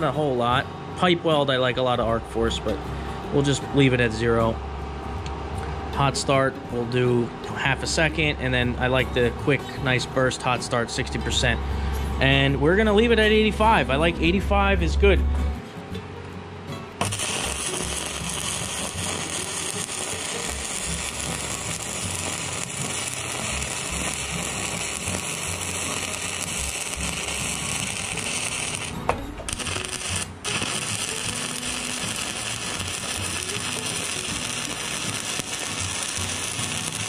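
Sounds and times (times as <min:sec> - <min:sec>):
welding arc crackling sizzle: 0:17.0 - 0:37.0.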